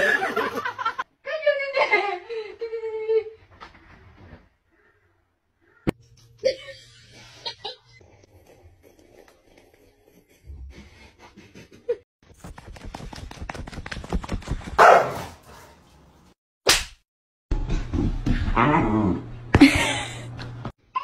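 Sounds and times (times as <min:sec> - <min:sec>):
sharp slap: 0:16.6 - 0:17.0.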